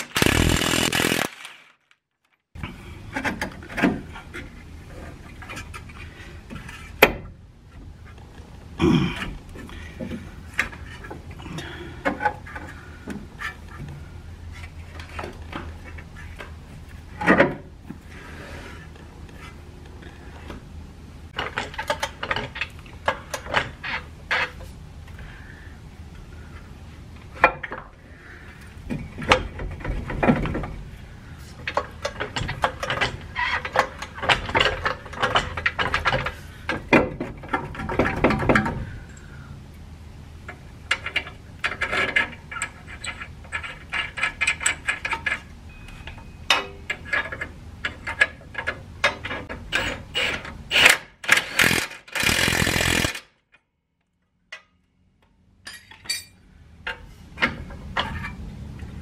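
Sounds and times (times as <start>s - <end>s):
loud steady burst: 0.0s - 1.7s
rapid ratchet clicking: 0.1s - 1.4s, 49.8s - 53.3s
hand tools clinking on steel: 55.6s - 56.4s.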